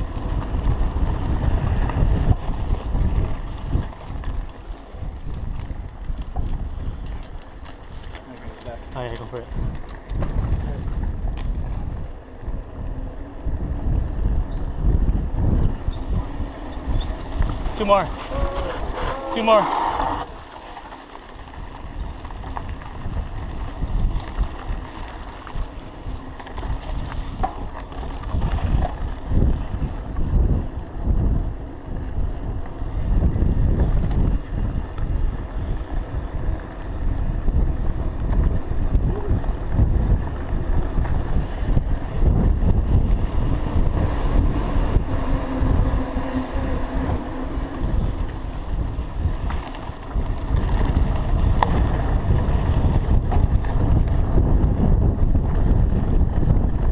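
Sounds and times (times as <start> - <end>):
wind on microphone: 0.0 - 8.1, 8.7 - 20.5, 21.4 - 56.9
bike knocking over trail: 0.1 - 12.6, 32.5 - 56.9.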